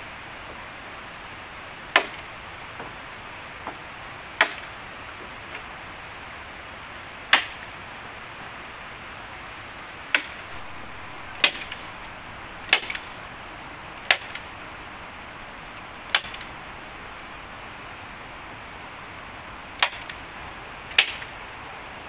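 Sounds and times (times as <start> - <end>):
steady background hiss: 0.0 - 22.0
hand tool striking wood: 2.0 - 2.2, 4.4 - 4.7, 7.3 - 7.6, 10.1 - 10.4, 12.7 - 13.0, 14.0 - 14.4, 16.1 - 16.4, 19.8 - 20.1.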